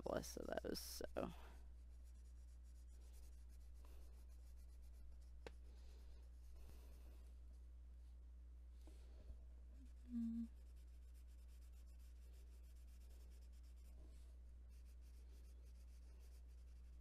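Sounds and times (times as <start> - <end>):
crayon scratching on paper: 0.7 - 5.6, 9.8 - 14.0, 14.7 - 17.0.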